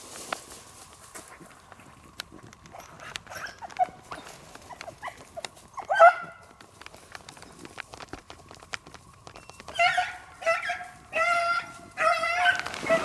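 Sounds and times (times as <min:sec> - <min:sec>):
dogs yipping: 0:02.7 - 0:06.4, 0:09.4 - 0:13.0
dog crying: 0:09.7 - 0:13.0.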